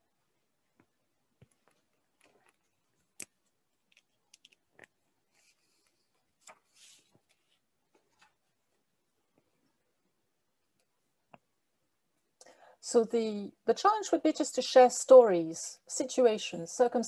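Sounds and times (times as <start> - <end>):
soft rustles: 0.7 - 9.7.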